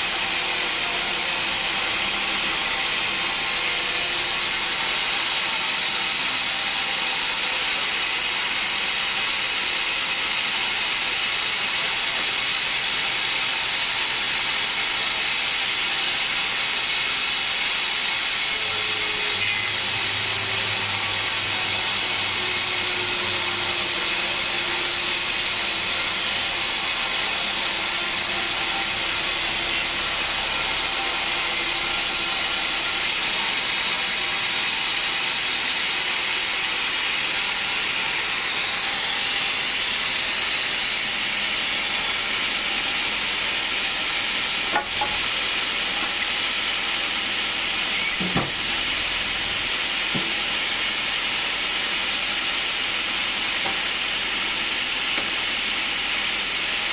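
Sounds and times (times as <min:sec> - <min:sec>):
saw blade hissing through wood: 0:00.0 - 0:56.9
motor running: 0:11.8 - 0:56.6.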